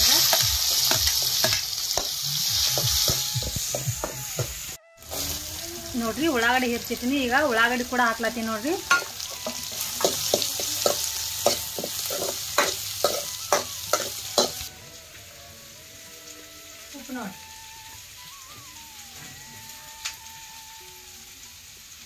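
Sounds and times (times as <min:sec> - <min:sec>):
onions sizzling in a pan: 0:00.0 - 0:22.0
steel spoon clacking on pan: 0:08.9 - 0:14.7.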